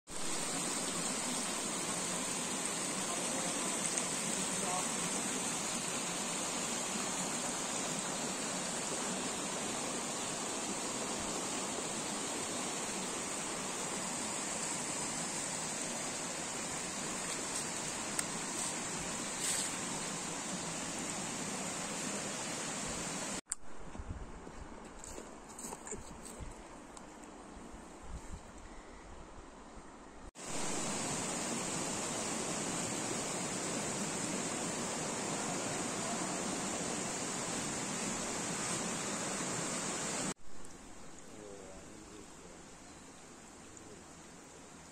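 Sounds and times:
creek flowing over rocks: 0:00.1 - 0:23.4, 0:30.4 - 0:40.4.

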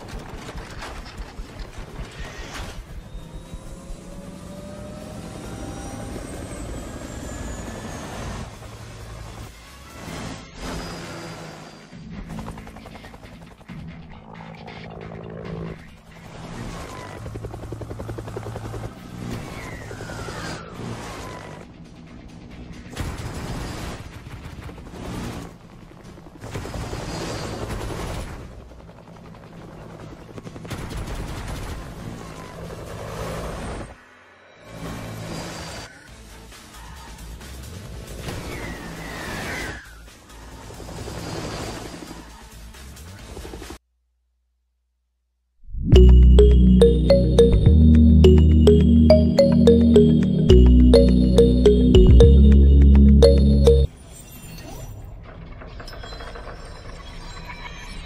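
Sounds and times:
helicopter rotor whirring: 0:12.2 - 0:14.4, 0:15.3 - 0:20.2, 0:28.7 - 0:30.7.

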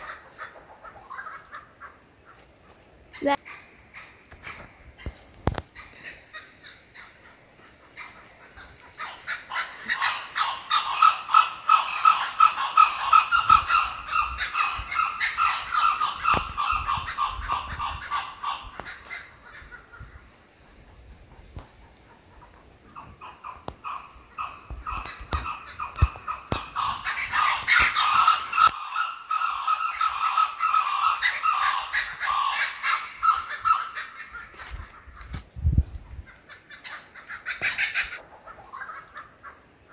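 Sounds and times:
kookaburra cackling: 0:00.0 - 0:35.4, 0:36.1 - 0:39.9
kookaburra laughing call: 0:22.1 - 0:35.3, 0:36.3 - 0:39.9.

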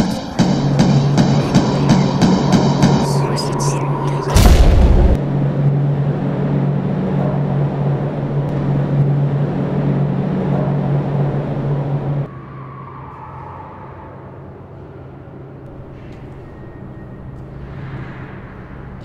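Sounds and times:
low mechanical hum: 0:00.0 - 0:12.8
rushing noise: 0:00.0 - 0:15.5
faint higher tone: 0:01.3 - 0:04.4.

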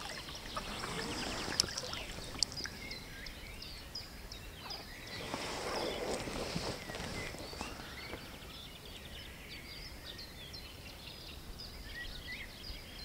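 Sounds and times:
river water flowing: 0:00.0 - 0:03.6
small birds chirping: 0:00.0 - 0:13.0.

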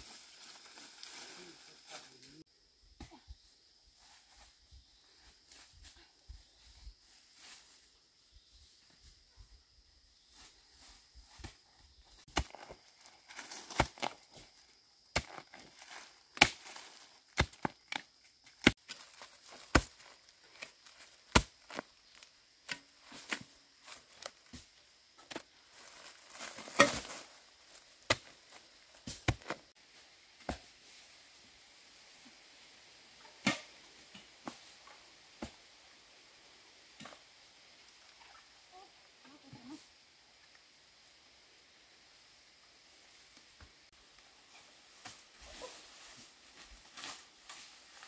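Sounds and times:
dry leaves rustling: 0:00.0 - 0:02.4, 0:12.2 - 0:22.4, 0:25.4 - 0:32.1, 0:44.0 - 0:48.0
metal digging tool striking soil: 0:26.4 - 0:27.2.

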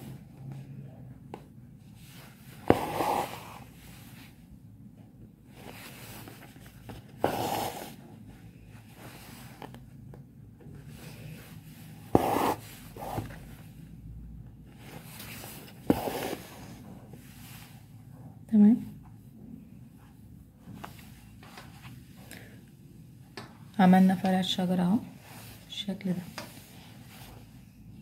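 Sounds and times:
thread scraping fabric: 0:02.0 - 0:03.8, 0:12.0 - 0:13.4.

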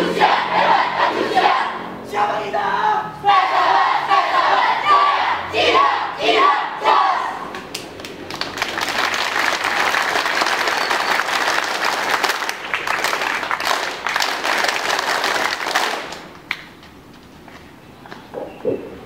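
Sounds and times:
single clap: 0:07.5 - 0:17.0
crowd applause: 0:08.0 - 0:16.3.

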